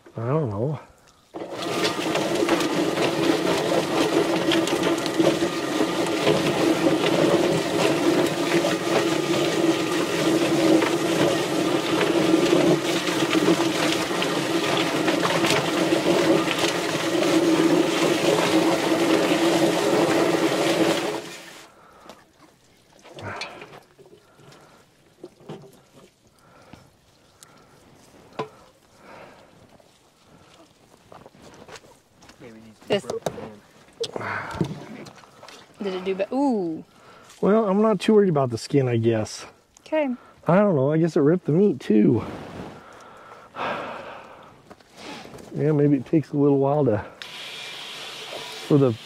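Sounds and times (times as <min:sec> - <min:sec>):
rushing water: 0:00.4 - 0:30.9, 0:45.5 - 0:49.0.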